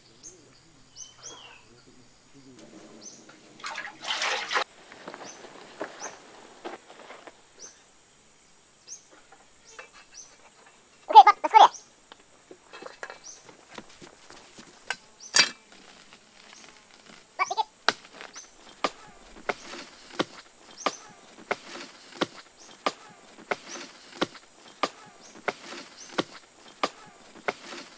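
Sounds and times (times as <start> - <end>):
hand tool chopping wood: 13.4 - 27.9.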